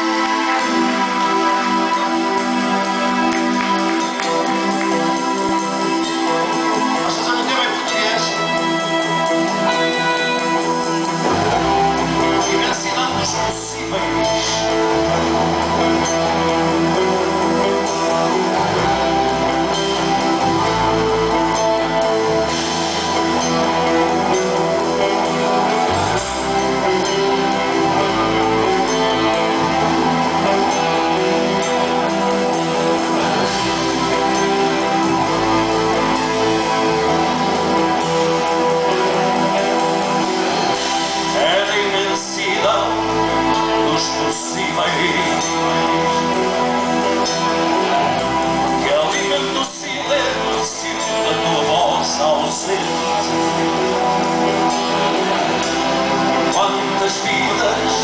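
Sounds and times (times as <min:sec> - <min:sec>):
electric guitars: 0:00.0 - 0:58.0
live rock band playing: 0:00.0 - 0:58.0
bass notes: 0:08.7 - 0:58.0.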